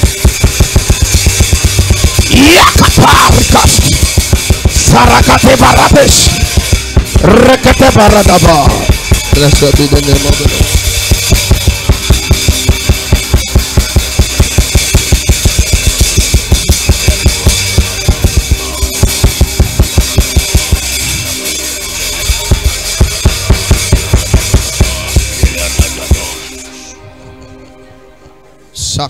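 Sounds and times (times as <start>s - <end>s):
fast bass drum beat: 0.0s - 26.5s
snare and cymbals: 0.0s - 26.7s.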